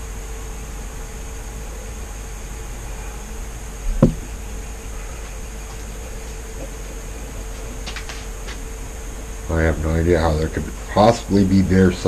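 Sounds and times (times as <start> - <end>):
background hum and hiss: 0.0 - 12.0
low thump: 4.0 - 4.3.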